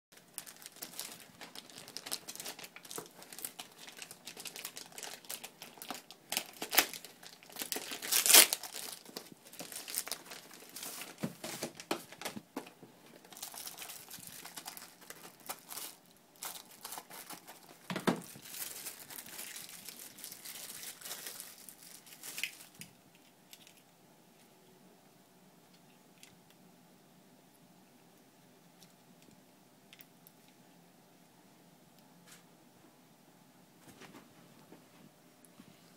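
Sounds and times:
packaging crinkling and tearing: 0.2 - 23.8.

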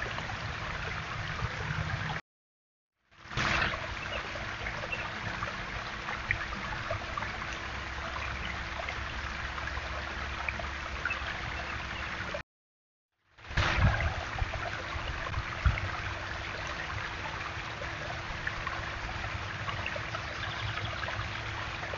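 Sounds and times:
water trickling over stones: 3.2 - 12.4, 13.5 - 21.9
faint steady hum: 3.3 - 12.4, 13.5 - 21.9.

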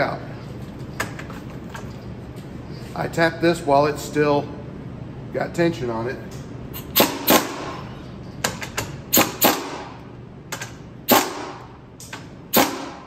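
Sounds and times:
impact wrench rattling bursts: 6.7 - 13.0.

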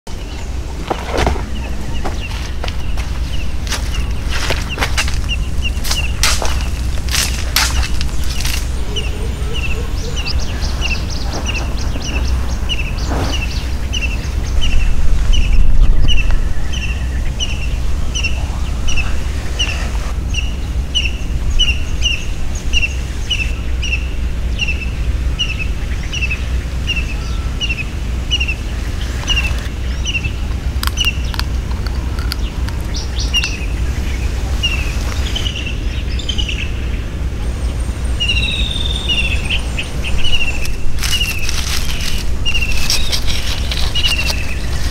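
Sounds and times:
low rumble: 0.1 - 26.8
bird chirping: 0.1 - 44.9.

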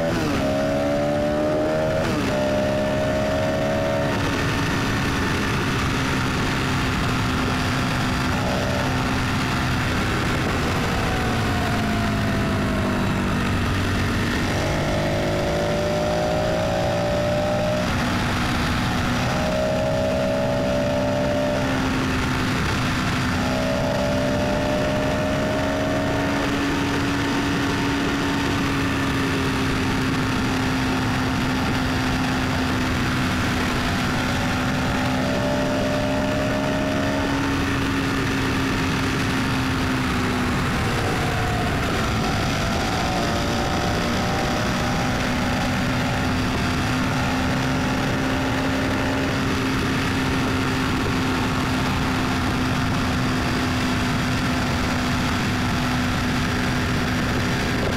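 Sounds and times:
car engine hum: 0.0 - 57.9
road noise rush: 0.0 - 57.9.

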